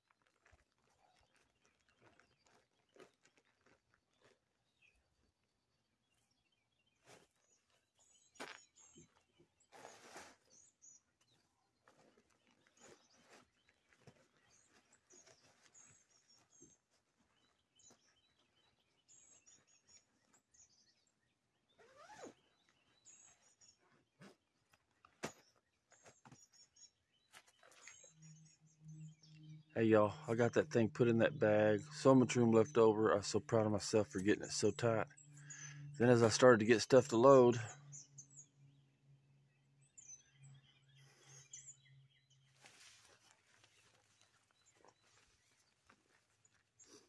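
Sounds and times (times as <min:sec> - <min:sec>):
birds chirping: 0:00.0 - 0:47.0
tent fabric rustling: 0:06.9 - 0:20.9, 0:21.7 - 0:26.6, 0:42.5 - 0:47.0.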